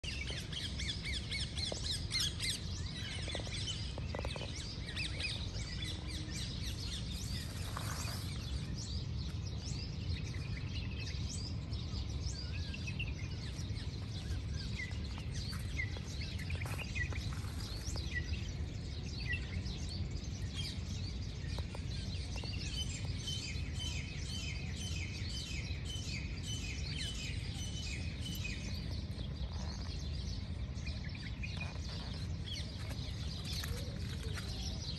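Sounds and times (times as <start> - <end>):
steady low rumble: 0.0 - 24.8
small birds chirping: 0.0 - 34.9.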